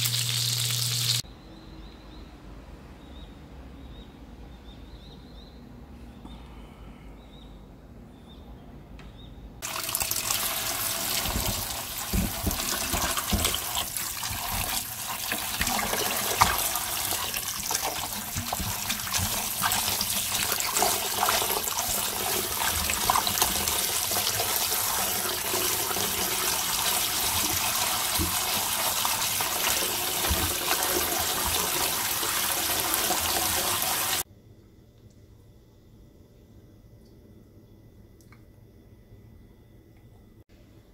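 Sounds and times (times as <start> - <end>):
tap water running into metal bowl: 9.6 - 34.2
water splashing and sloshing: 9.6 - 34.2.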